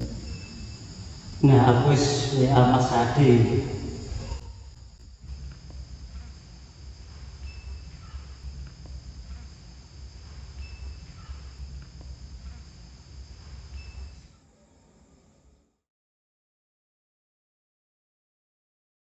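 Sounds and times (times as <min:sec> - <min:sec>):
low rumble: 0:00.0 - 0:13.5
insects chirping: 0:00.0 - 0:14.8.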